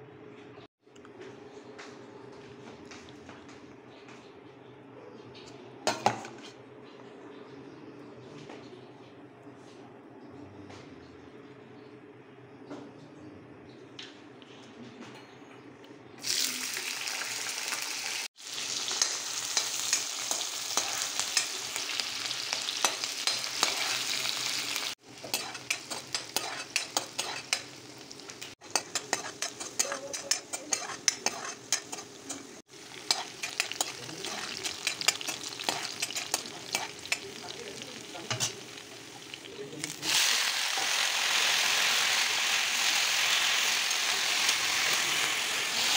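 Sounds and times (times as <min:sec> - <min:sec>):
vegetables sizzling in hot oil: 0:16.2 - 0:45.9
spatula scraping a pan: 0:22.8 - 0:24.2, 0:25.1 - 0:27.9, 0:28.6 - 0:37.4.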